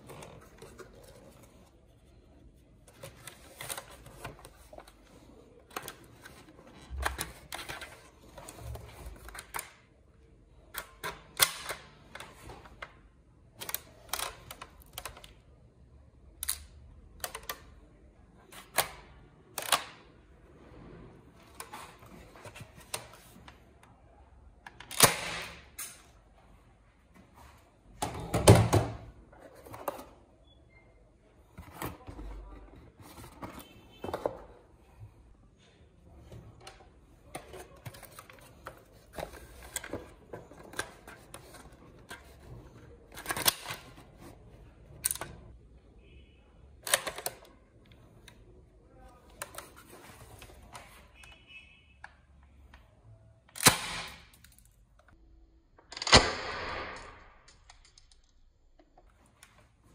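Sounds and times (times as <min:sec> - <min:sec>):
cardboard rustling: 0:00.0 - 0:09.3.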